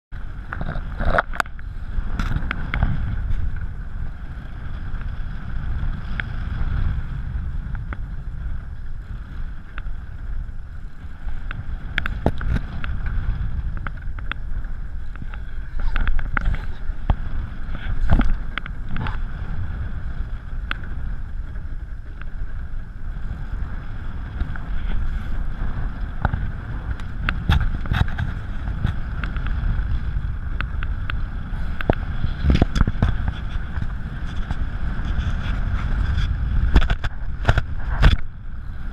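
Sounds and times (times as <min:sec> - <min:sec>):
wind buffeting microphone: 0:00.1 - 0:38.9.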